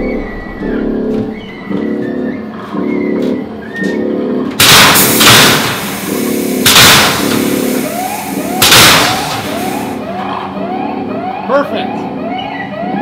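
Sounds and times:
repeating droning tone: 0:00.0 - 0:13.0
fog jet hissing blasts: 0:04.6 - 0:10.0.

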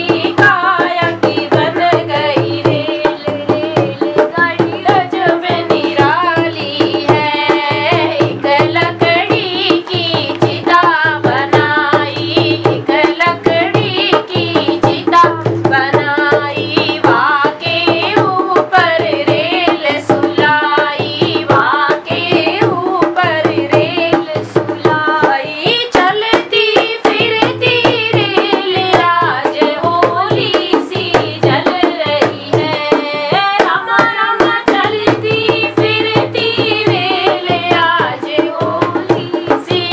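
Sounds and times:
girl singing devotional song: 0:00.0 - 0:39.9.

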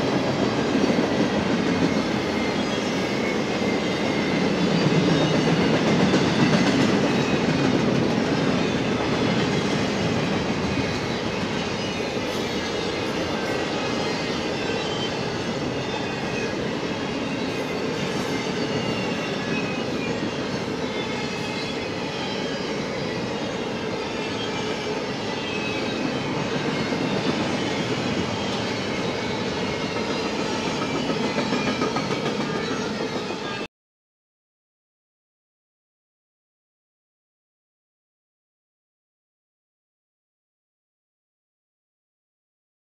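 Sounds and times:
freight train wheels clattering on track: 0:00.0 - 0:23.0, 0:23.6 - 0:33.5.

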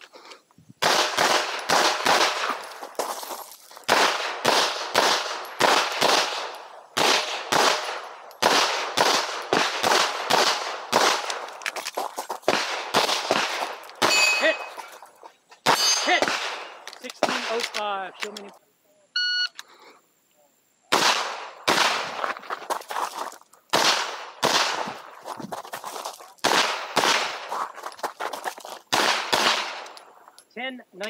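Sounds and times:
pistol shots: 0:00.8 - 0:02.8, 0:03.8 - 0:11.6, 0:12.4 - 0:14.8, 0:15.6 - 0:17.8, 0:20.9 - 0:22.4, 0:23.7 - 0:25.1, 0:26.4 - 0:27.6, 0:28.9 - 0:30.1.

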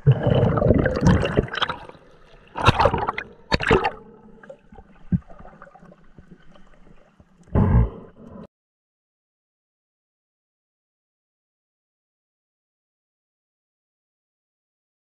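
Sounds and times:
water splashing against camera: 0:00.0 - 0:07.6
muffled underwater sound: 0:02.6 - 0:08.5.

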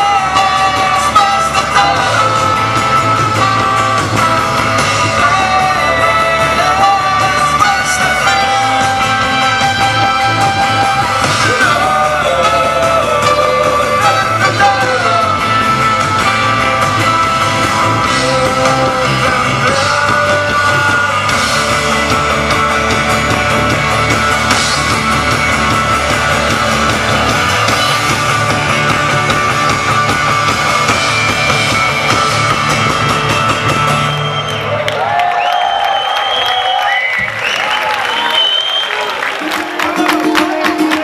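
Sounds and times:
person singing: 0:00.0 - 0:03.8, 0:04.9 - 0:15.9, 0:17.8 - 0:22.5
live rock band playing: 0:00.0 - 0:41.0
crowd cheering: 0:19.9 - 0:41.0.

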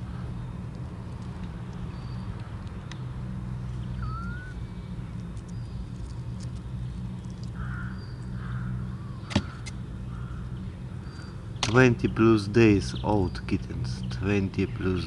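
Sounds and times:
steady low rumble: 0:00.0 - 0:15.0
thin rising chirp: 0:03.6 - 0:09.8
harsh bird caws: 0:07.5 - 0:11.4.

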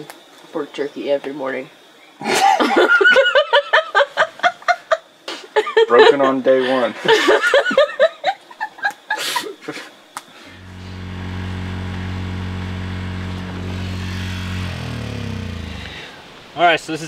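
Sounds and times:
people laughing: 0:02.2 - 0:09.9
generator engine humming: 0:10.4 - 0:16.6.

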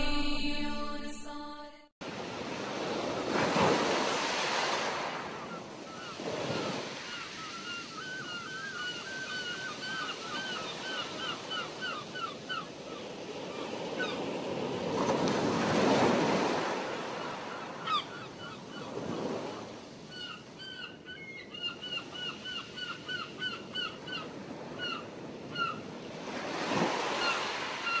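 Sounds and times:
sea waves washing in: 0:02.0 - 0:07.6, 0:13.2 - 0:17.9, 0:24.3 - 0:28.0.

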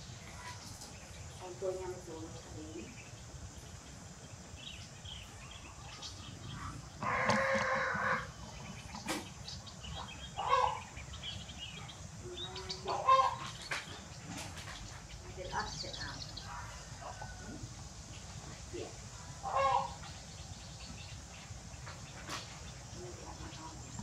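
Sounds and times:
chicken calls: 0:04.0 - 0:24.0
rooster crowing: 0:07.0 - 0:08.3.

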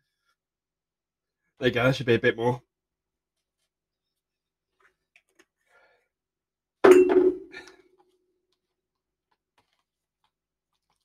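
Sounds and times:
metal container knocking on desk: 0:06.8 - 0:07.6.

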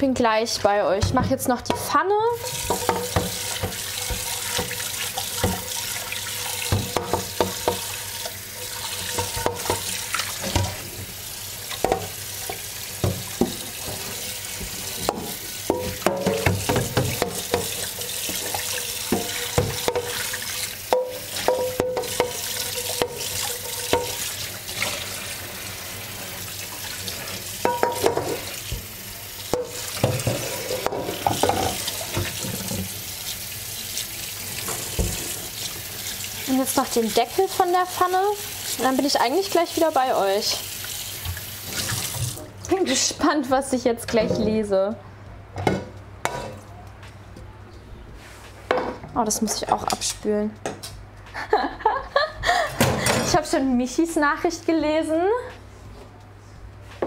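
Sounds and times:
frying pan knocking and clattering: 0:01.0 - 0:04.8, 0:06.7 - 0:07.9, 0:09.1 - 0:10.7, 0:15.0 - 0:20.2, 0:20.9 - 0:24.2, 0:27.6 - 0:28.5, 0:29.5 - 0:32.3
tap water running into sink: 0:02.4 - 0:42.4.

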